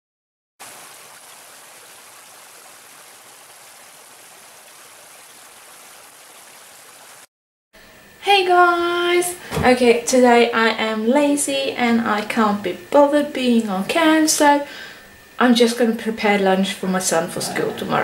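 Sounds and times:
stream water rushing over stones: 0.6s - 7.3s.

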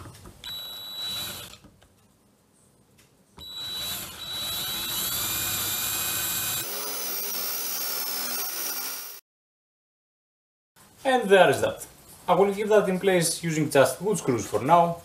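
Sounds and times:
electric drill boring into wood: 0.4s - 1.6s, 3.4s - 9.2s.

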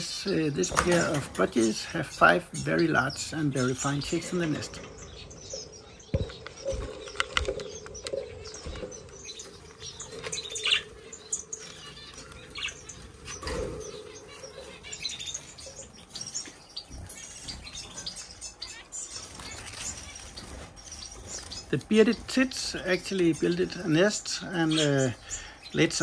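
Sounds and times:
wings fluttering and rustling: 0.0s - 25.4s
small birds chirping: 0.0s - 26.0s.

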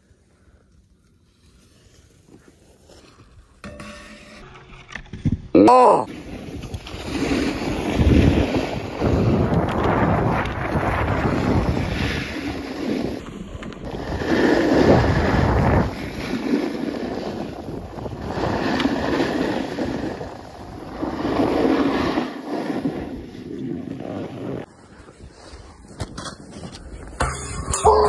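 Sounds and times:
wind buffeting microphone: 6.4s - 22.2s.

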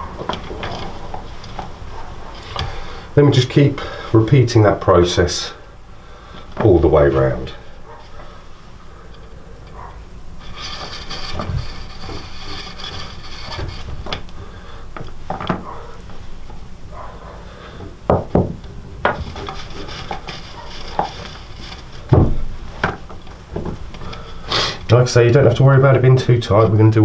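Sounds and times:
cord rubbing through drum skin: 10.4s - 14.6s, 19.2s - 24.2s
knocks against drum: 22.1s - 23.0s.

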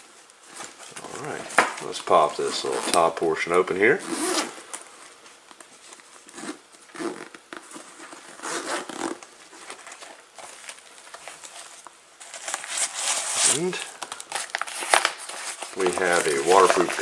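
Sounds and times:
zipper being pulled open: 4.0s - 4.6s, 6.3s - 9.2s
fabric rustling: 4.0s - 17.0s.

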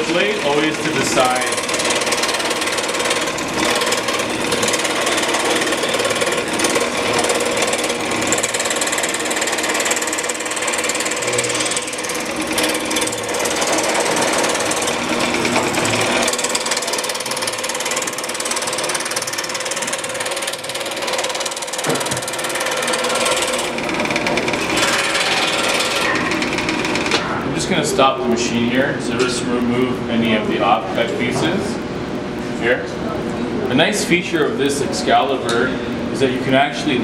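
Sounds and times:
scroll saw cutting board: 0.0s - 27.4s.

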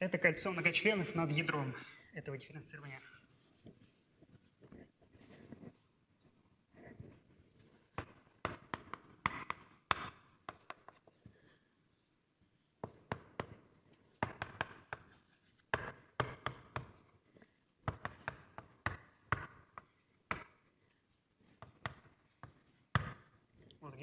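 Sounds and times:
chalk tapping and scratching: 2.8s - 5.9s, 6.8s - 11.4s, 12.8s - 23.8s.

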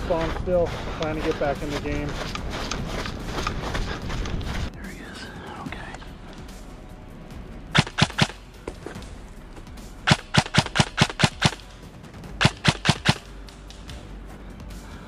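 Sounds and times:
airsoft gun shots: 7.7s - 8.4s, 10.0s - 11.6s, 12.4s - 13.3s.

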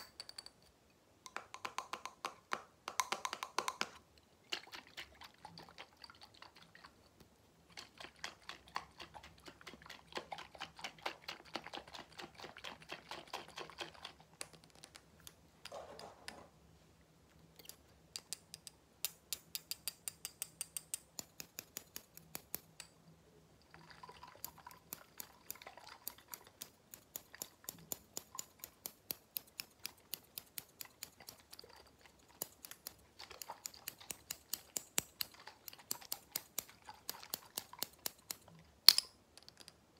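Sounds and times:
fingers tapping on container: 1.2s - 4.0s, 17.6s - 23.0s.

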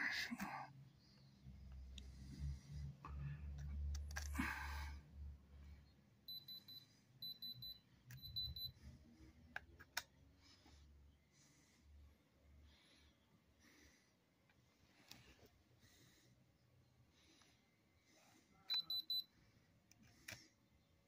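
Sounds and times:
short high beeps: 18.7s - 19.2s.

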